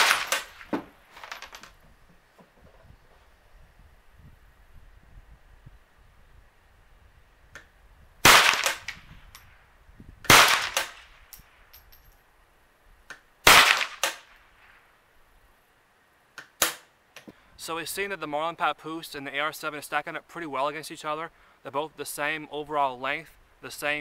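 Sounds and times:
rifle shots with echo: 0.0 - 0.6, 8.2 - 8.9, 10.3 - 11.1, 13.5 - 14.2.

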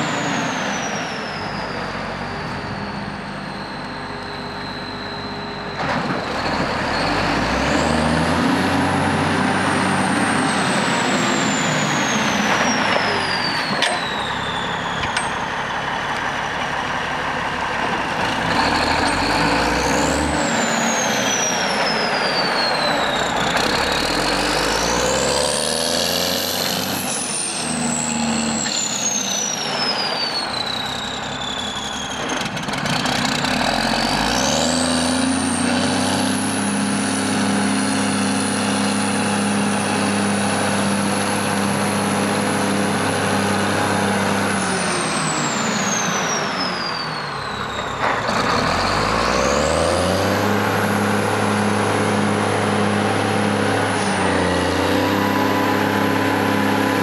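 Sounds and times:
diesel engine revving: 0.0 - 57.0.

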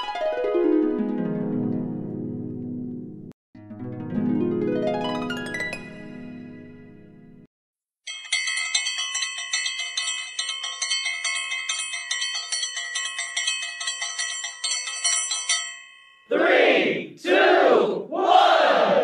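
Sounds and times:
small metal bells tinkling: 8.0 - 16.3.

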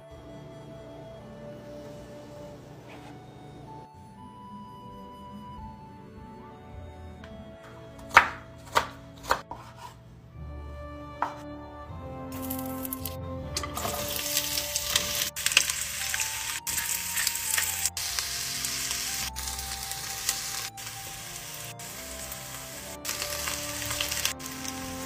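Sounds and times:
soft background music: 0.0 - 25.0
onions sizzling in a pot: 12.4 - 25.0.

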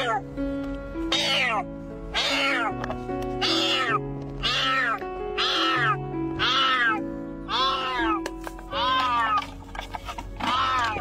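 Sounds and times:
kitten meowing: 0.0 - 0.3, 1.1 - 2.8, 3.4 - 9.5, 10.4 - 11.0
background music: 0.0 - 11.0.

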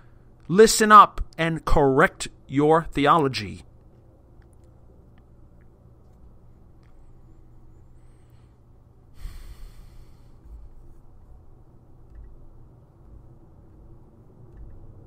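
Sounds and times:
steady low hum: 0.0 - 15.0
man breathing into microphone: 9.2 - 10.7.

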